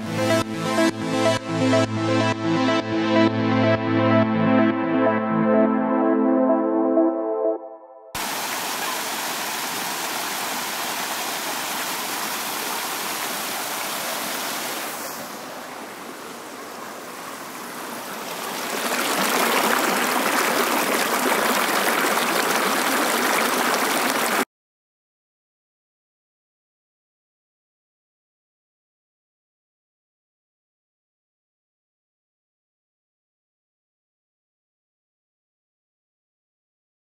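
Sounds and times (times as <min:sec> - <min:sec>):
surf washing: 0:08.2 - 0:24.4.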